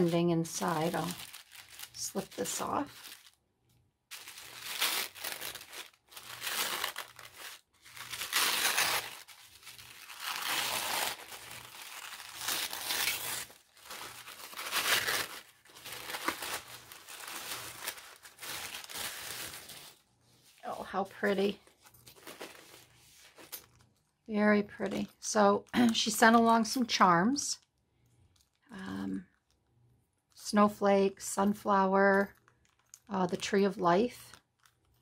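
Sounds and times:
packaging crinkling and rustling: 0.0 - 3.4, 4.1 - 24.2, 28.3 - 28.6, 32.2 - 33.4, 34.2 - 35.0.

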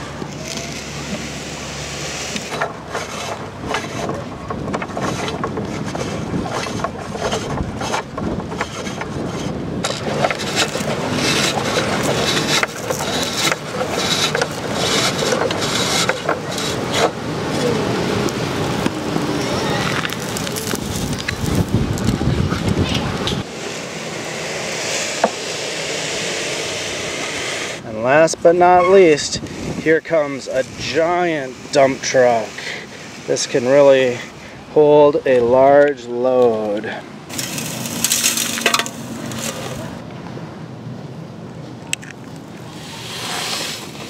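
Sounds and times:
toy scoop scraping in sand: 0.0 - 4.2, 4.9 - 17.7, 23.4 - 34.4, 36.6 - 40.0, 42.6 - 44.0
wind on microphone: 3.2 - 24.0, 26.1 - 35.5.

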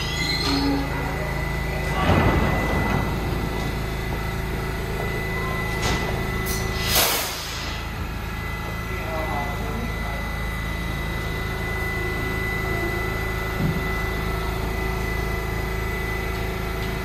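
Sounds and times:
subway train low rumble: 0.0 - 17.0
air hissing: 6.4 - 8.0.

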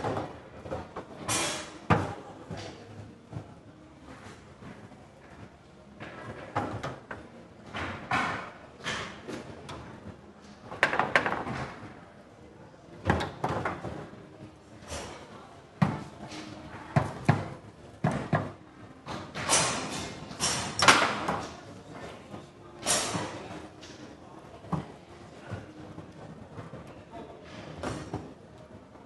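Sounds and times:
foosball ball clacks: 10.7 - 11.8.

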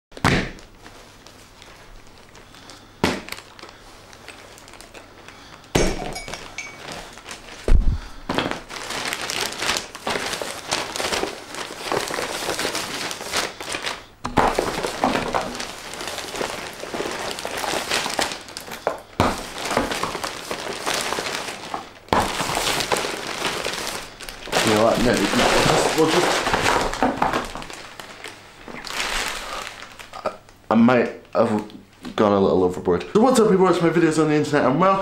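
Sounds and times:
packaging crinkling and rustling: 0.5 - 32.2
objects thumping on furniture: 7.7 - 8.6.

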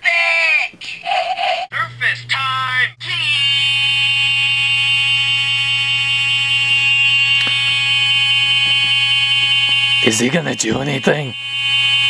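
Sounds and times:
low hum: 1.0 - 12.0
buzzy electronic tone: 3.1 - 12.0.

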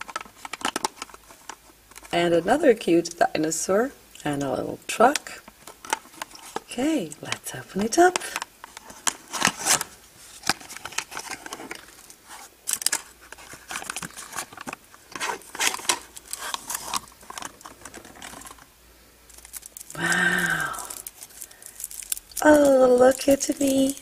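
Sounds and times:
cardboard box being opened: 8.9 - 18.6.

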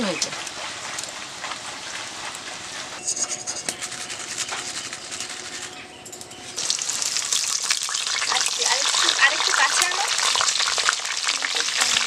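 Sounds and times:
hot oil sizzling in a wok: 0.0 - 4.6, 6.6 - 12.0
fried chips crackling when crushed: 3.6 - 5.8, 6.6 - 12.0.

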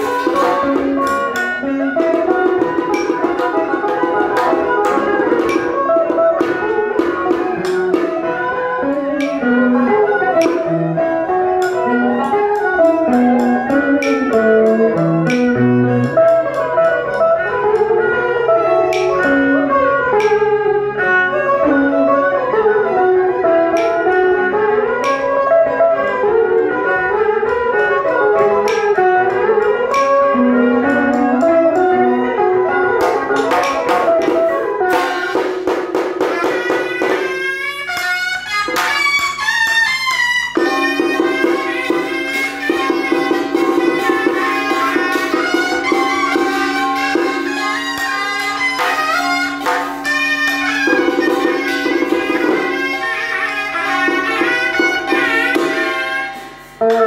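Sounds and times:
percussion strikes: 0.0 - 57.0
sliding pitch melody: 0.0 - 57.0.

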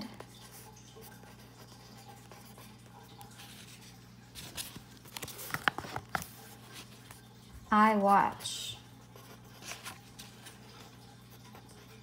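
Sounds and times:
pen scratching on paper: 1.2 - 2.8.

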